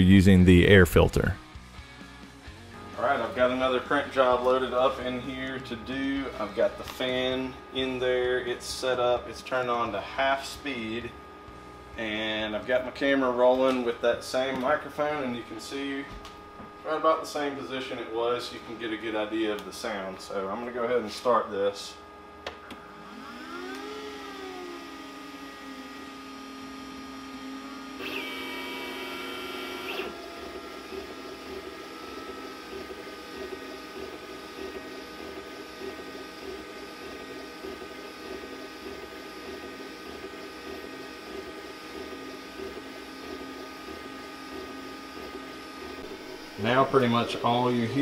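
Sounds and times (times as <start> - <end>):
laser engraver arm humming: 22.1 - 48.0.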